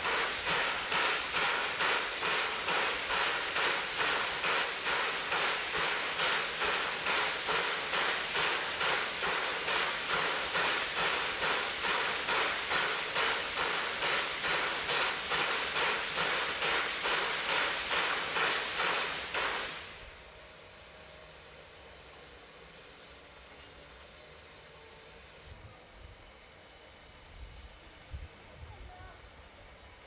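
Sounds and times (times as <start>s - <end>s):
steam locomotive puffing: 0.0s - 20.1s
steady steam hiss: 0.0s - 30.0s.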